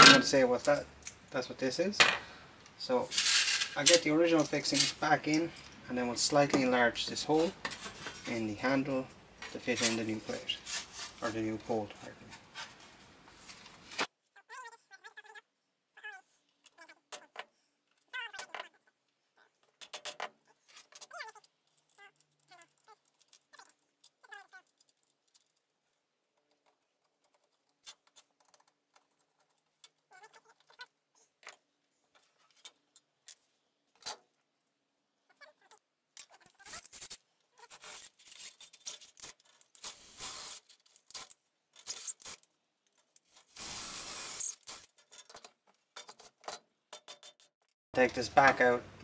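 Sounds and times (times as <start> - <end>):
small screws clicking: 19.7 - 30.8, 36.2 - 47.4
cordless drill boring wood: 39.8 - 40.6, 43.5 - 44.8.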